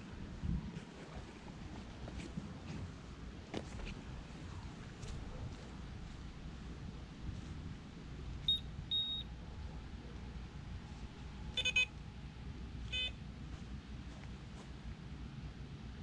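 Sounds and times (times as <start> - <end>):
high single-pitch beeps: 8.5 - 9.3, 11.6 - 11.9
multi-tone electronic beep: 8.5 - 9.3, 11.6 - 11.9.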